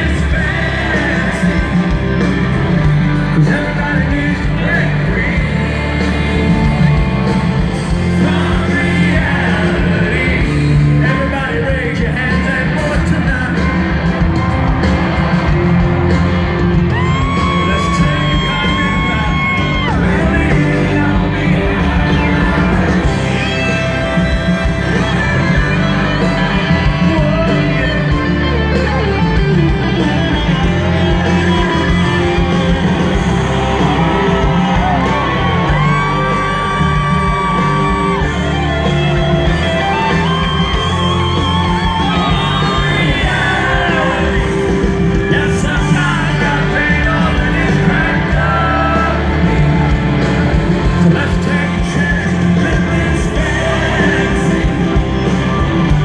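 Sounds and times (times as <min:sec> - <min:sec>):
country-rock band playing live: 0:00.0 - 0:56.0
crowd singing and yelling: 0:00.0 - 0:56.0.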